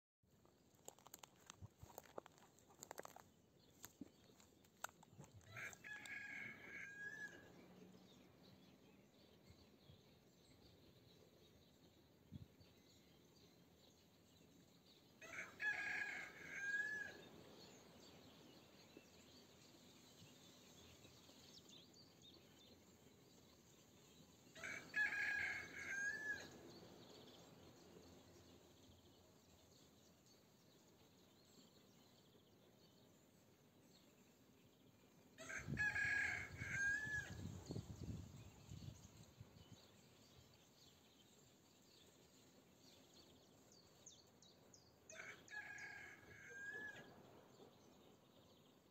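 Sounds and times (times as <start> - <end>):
rooster crowing: 24.6 - 26.5, 35.4 - 37.4.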